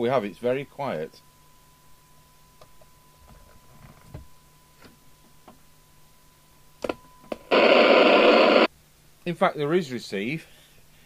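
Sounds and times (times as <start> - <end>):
faint radio test tone: 7.0 - 8.7
radio receiver hiss: 7.3 - 8.7.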